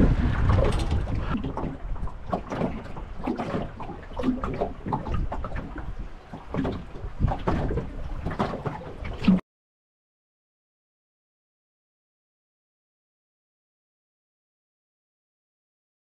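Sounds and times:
water slapping against boat hull: 0:00.0 - 0:09.4.

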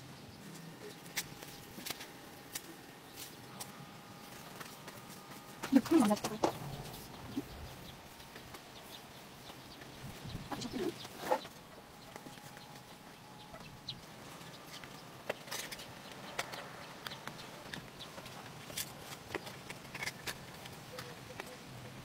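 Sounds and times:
chicken clucking: 0:08.9 - 0:15.0.

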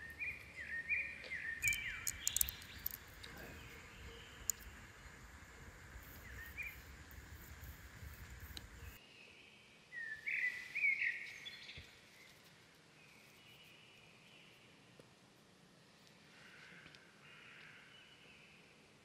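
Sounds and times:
bird chirping: 0:00.0 - 0:12.4
low background noise: 0:00.0 - 0:19.0.

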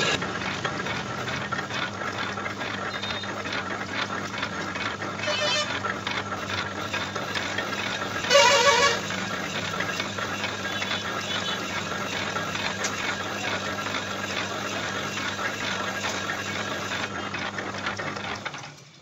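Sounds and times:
lathe running: 0:00.0 - 0:18.8
horn-like toot: 0:08.2 - 0:09.1.

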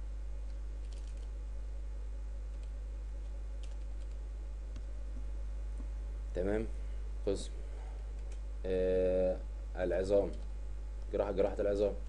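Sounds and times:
low electrical hum: 0:00.0 - 0:12.0
keyboard typing: 0:00.5 - 0:01.3, 0:03.6 - 0:04.2.

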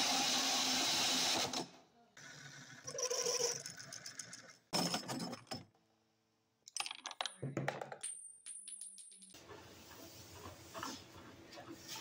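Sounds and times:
metal parts clicking and clattering: 0:06.7 - 0:09.4.

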